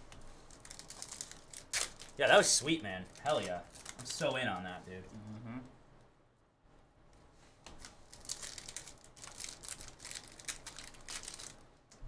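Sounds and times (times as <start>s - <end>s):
wrapper crinkling and tearing: 0.4s - 4.9s, 7.8s - 11.6s.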